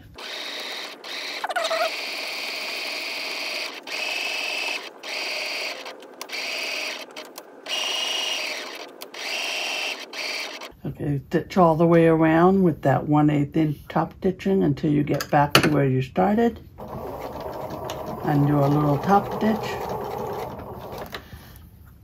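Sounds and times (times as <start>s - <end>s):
electric sewing machine running: 0.0s - 10.7s, 16.8s - 21.2s.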